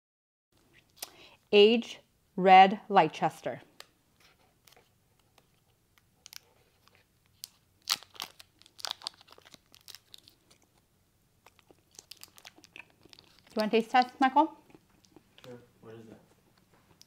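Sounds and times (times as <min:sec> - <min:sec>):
wrapper crinkling and tearing: 0:04.6 - 0:10.8, 0:11.4 - 0:14.2.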